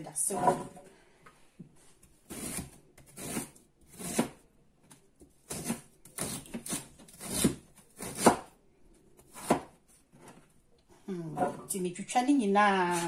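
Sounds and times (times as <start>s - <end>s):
knife chopping on plastic board: 5.5s - 8.5s, 9.3s - 9.8s.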